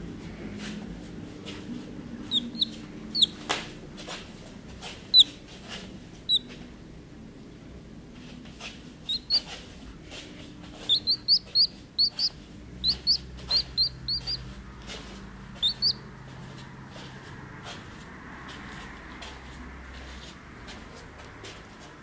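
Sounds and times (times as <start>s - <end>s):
chick peeping: 2.2s - 3.6s, 5.1s - 5.4s, 6.3s - 6.5s, 9.0s - 9.6s, 10.8s - 14.5s, 15.5s - 16.1s.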